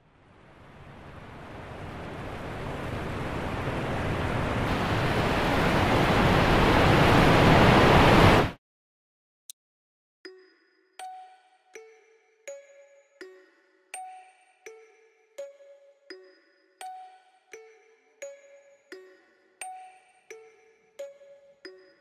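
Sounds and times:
steady rushing noise: 0:00.0 - 0:08.6.

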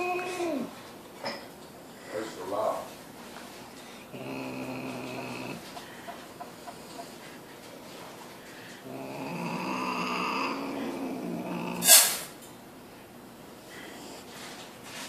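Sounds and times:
cat growling: 0:00.0 - 0:00.8, 0:04.1 - 0:05.7, 0:08.8 - 0:12.3
cat hissing: 0:08.9 - 0:12.4.

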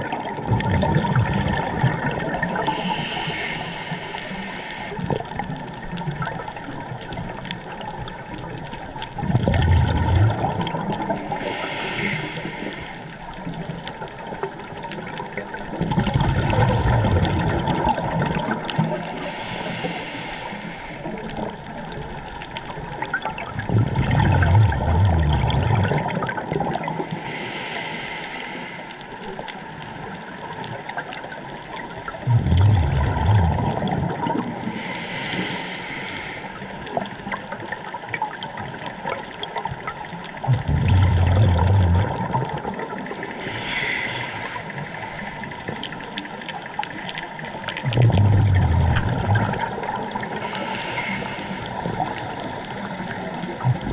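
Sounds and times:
bubbling diver exhalations: 0:00.0 - 0:03.6, 0:09.2 - 0:12.6, 0:15.8 - 0:19.0, 0:23.6 - 0:27.0, 0:32.2 - 0:35.1, 0:40.4 - 0:45.8, 0:47.7 - 0:53.9
regulator hiss: 0:02.4 - 0:05.1, 0:50.2 - 0:52.0.

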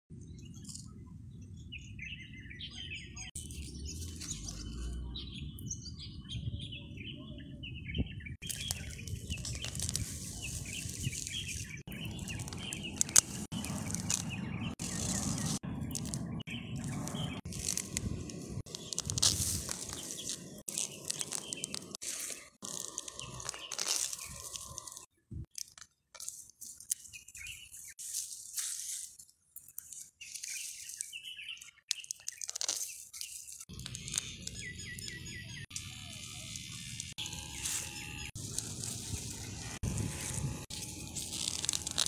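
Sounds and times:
small birds chirping: 0:00.2 - 0:42.0
metal blade scraping dry soil: 0:08.4 - 0:25.1, 0:26.2 - 0:31.3, 0:35.7 - 0:42.0.

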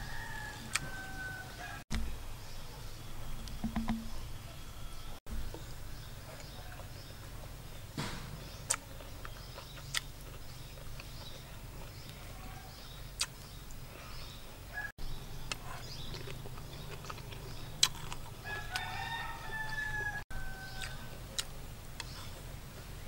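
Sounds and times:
rooster crowing: 0:00.0 - 0:01.8, 0:14.7 - 0:14.9, 0:18.4 - 0:21.2.

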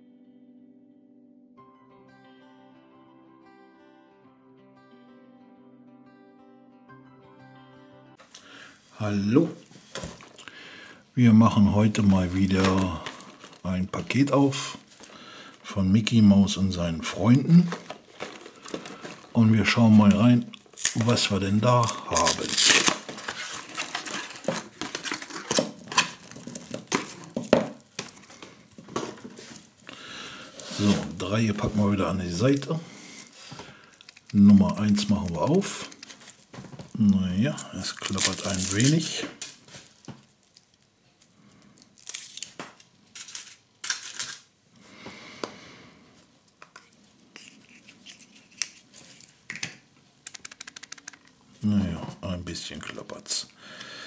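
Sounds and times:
cardboard rustling: 0:12.0 - 0:15.2, 0:17.1 - 0:40.4
foil wrapper crinkling: 0:12.0 - 0:15.7, 0:17.6 - 0:44.5
chocolate shell breaking: 0:41.5 - 0:44.5
plastic capsule clicks: 0:49.5 - 0:51.4.

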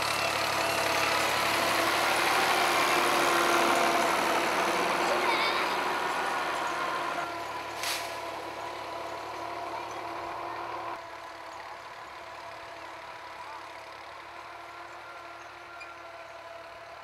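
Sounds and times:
engine running: 0:00.0 - 0:17.0
short hiss: 0:07.8 - 0:08.2.

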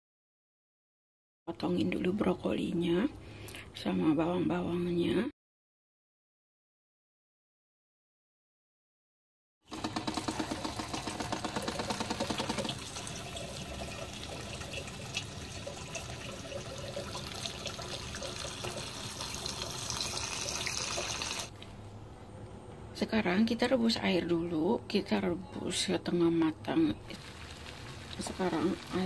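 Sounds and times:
tap water running into sink: 0:09.8 - 0:21.5.

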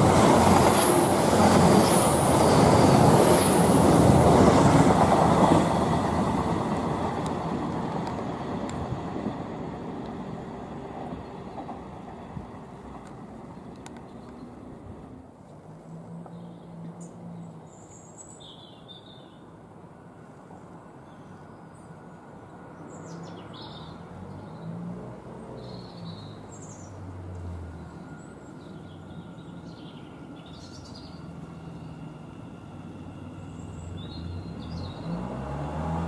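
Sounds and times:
electric train hum: 0:00.0 - 0:17.8, 0:26.3 - 0:36.0
small birds chirping: 0:25.6 - 0:27.0, 0:27.9 - 0:32.2, 0:33.3 - 0:35.2.

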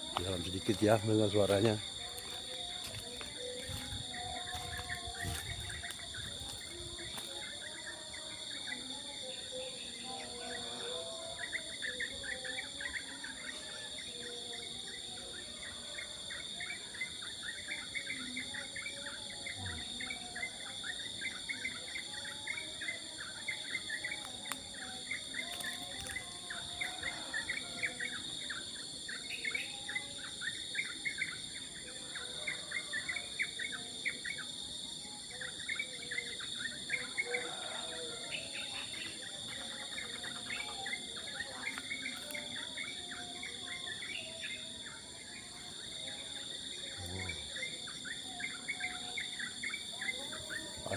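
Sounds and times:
insects trilling: 0:00.0 - 0:50.9
small birds chirping: 0:23.5 - 0:31.4.

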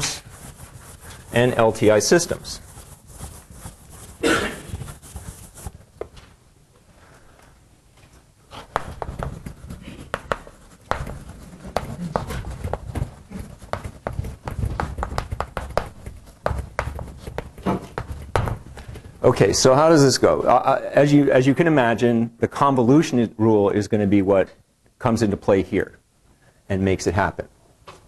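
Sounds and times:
short rustling: 0:00.0 - 0:20.3
quick irregular taps and knocks: 0:08.6 - 0:19.2.

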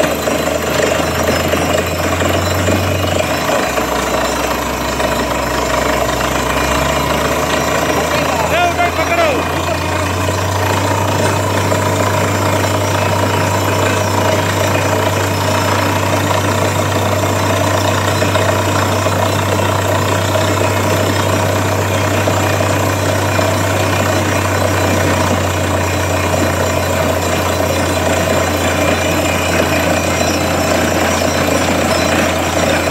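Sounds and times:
drilling rig engine running: 0:00.0 - 0:32.9.

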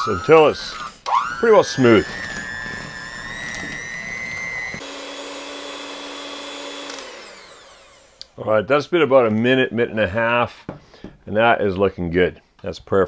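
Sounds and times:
electric hand mixer whining: 0:00.0 - 0:08.4.

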